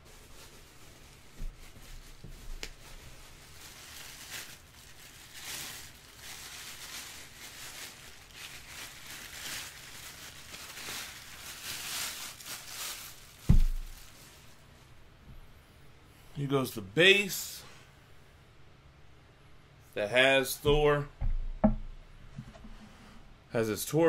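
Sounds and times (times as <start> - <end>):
plastic bag crinkling: 0.0 - 14.7
dull thump: 13.4 - 13.9, 20.7 - 22.8.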